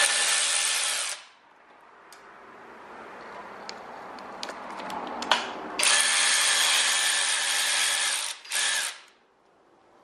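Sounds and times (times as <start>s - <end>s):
cordless power driver whirring: 5.8s - 9.2s.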